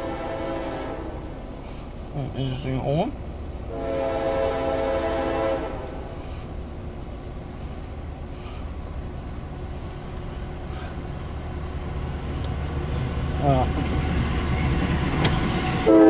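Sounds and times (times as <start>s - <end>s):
locomotive horn chord: 0.0s - 1.2s, 3.7s - 6.1s, 15.8s - 16.0s
low train rumble: 0.0s - 16.0s.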